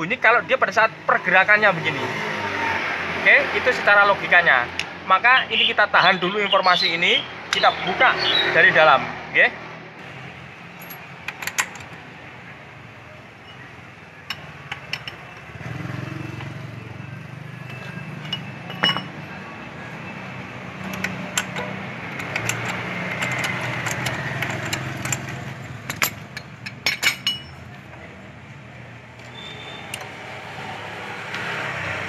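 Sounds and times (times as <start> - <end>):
metal tool clicks and clinks: 14.3 - 15.2, 18.2 - 19.2, 20.8 - 27.7.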